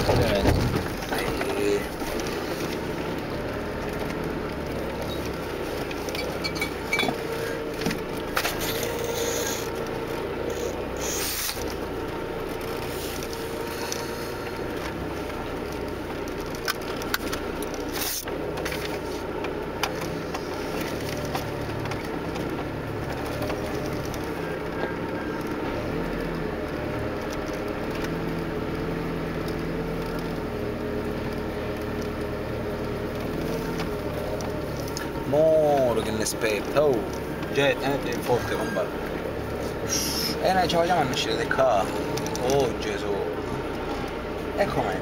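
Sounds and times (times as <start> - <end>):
vehicle knocks and scrapes: 0.0 - 26.1
engine droning: 0.0 - 45.0.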